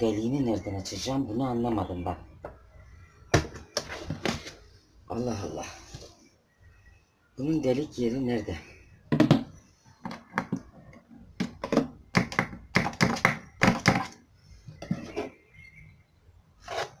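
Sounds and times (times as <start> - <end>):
planter box knocking: 11.4 - 14.2.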